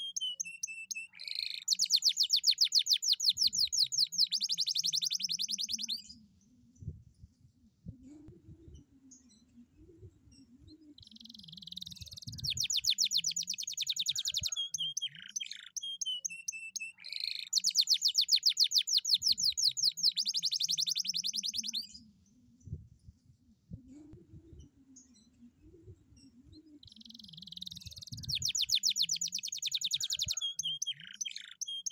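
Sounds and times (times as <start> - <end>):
canary singing: 0.0 - 6.1, 10.9 - 22.0, 26.8 - 31.9.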